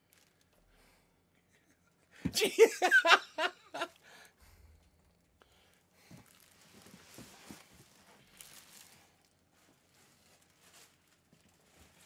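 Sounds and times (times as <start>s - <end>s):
man laughing: 1.8s - 3.9s.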